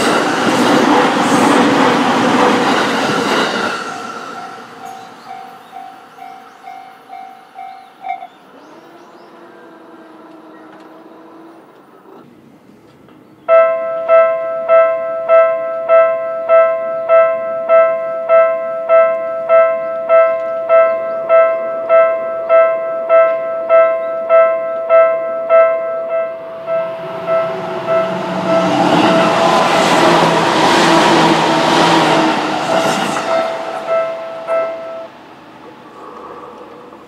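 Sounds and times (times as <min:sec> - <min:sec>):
railway crossing warning bell: 0:03.8 - 0:08.5, 0:13.5 - 0:30.8, 0:32.7 - 0:35.2.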